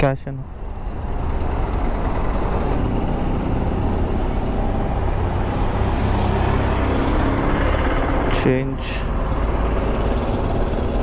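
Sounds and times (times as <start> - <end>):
road traffic: 0.0 - 11.0
engine idling: 0.4 - 11.0.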